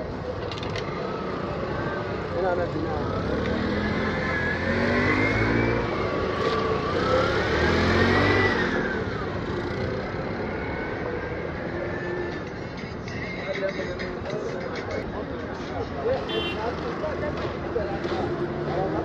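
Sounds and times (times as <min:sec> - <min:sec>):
street traffic noise: 0:00.0 - 0:19.0
auto-rickshaw engine revving: 0:00.5 - 0:12.5.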